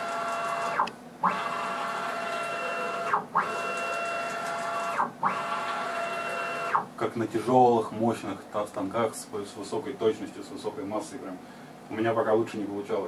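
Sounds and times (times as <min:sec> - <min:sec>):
cnc router axis whine: 0:00.0 - 0:06.9.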